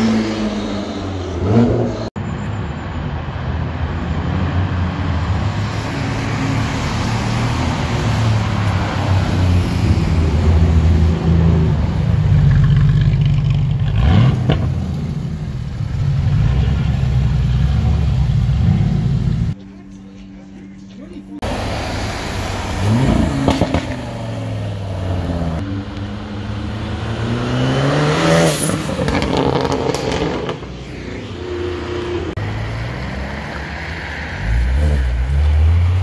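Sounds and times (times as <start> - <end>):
cars passing at low revs: 0.0 - 36.0
car engine revving: 6.0 - 19.6, 21.4 - 33.4.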